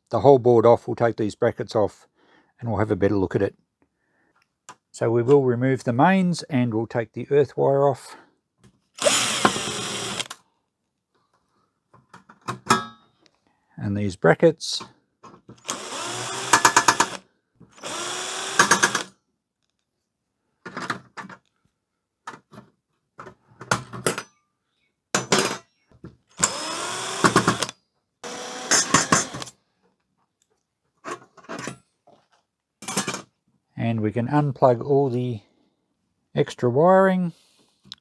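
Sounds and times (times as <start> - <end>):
drill clutch rapid clicking: 9.0 - 10.3, 15.6 - 17.2, 17.8 - 19.1, 26.4 - 29.5
cordless drill motor: 9.0 - 10.4, 15.6 - 19.1, 26.4 - 29.5.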